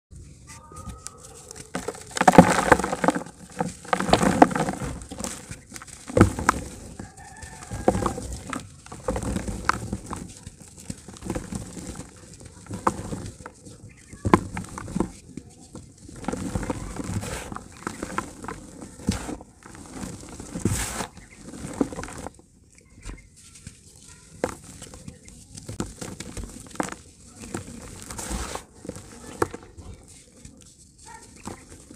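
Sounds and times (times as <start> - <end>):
hands crushing dry dirt: 0.2 - 31.9
crumbs falling into plastic tub: 0.8 - 22.4, 23.6 - 31.9.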